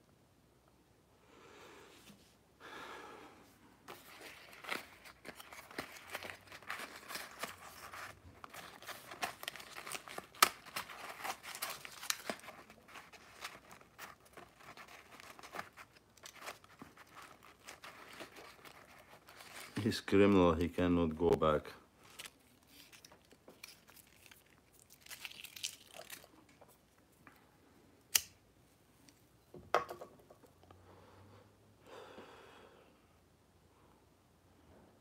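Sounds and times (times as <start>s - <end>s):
rustling and crinkling: 3.7s - 27.5s.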